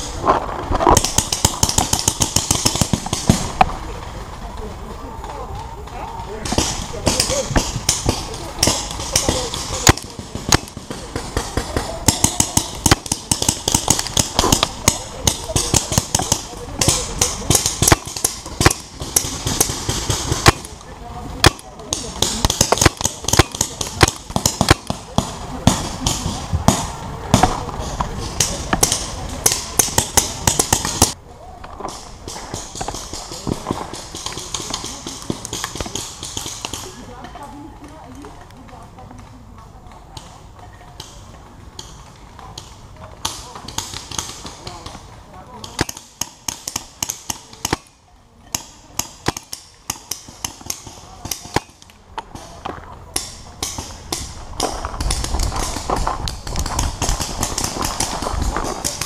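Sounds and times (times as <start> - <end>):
camera movement rumble: 0.0 - 22.4, 51.0 - 59.0
paintball markers firing: 0.8 - 3.8, 6.2 - 37.4, 40.2 - 59.0
paintball markers popping: 48.6 - 59.0.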